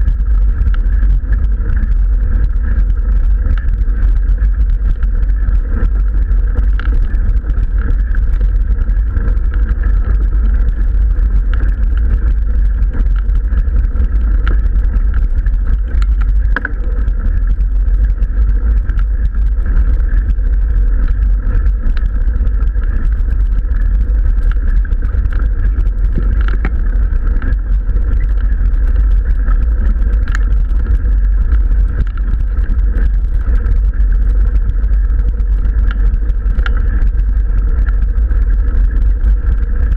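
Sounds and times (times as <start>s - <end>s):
bike tyres rumbling on gravel: 0.0s - 39.9s
faint clicks: 5.7s - 20.1s, 21.0s - 34.1s, 35.7s - 38.0s.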